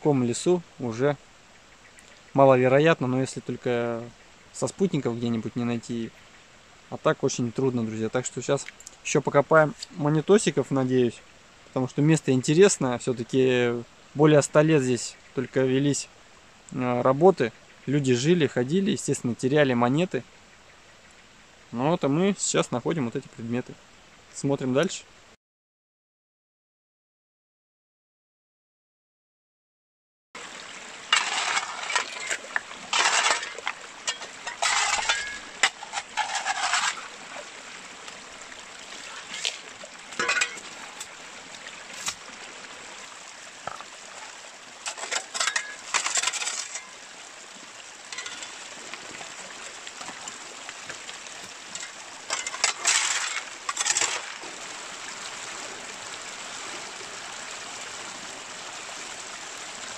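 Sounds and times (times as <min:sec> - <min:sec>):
stream rushing: 0:30.4 - 0:59.9
gravel scraping against metal: 0:31.1 - 0:37.4, 0:39.0 - 0:41.1, 0:44.8 - 0:47.0, 0:48.1 - 0:48.7, 0:51.4 - 0:54.5.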